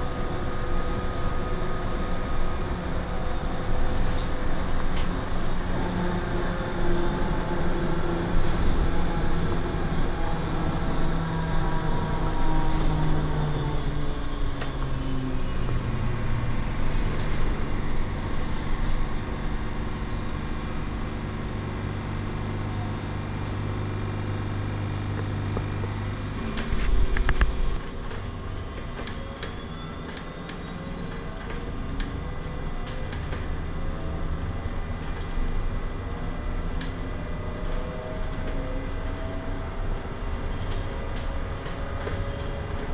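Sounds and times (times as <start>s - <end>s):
electric bus motor whining: 0.0s - 42.9s
road and tyre noise: 0.0s - 42.9s
low rumble with sharp clicks: 12.4s - 33.5s.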